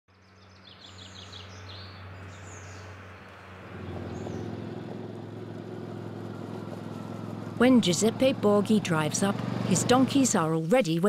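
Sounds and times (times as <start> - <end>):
small birds chirping: 0.1 - 11.0
quad bike engine running: 3.6 - 10.6.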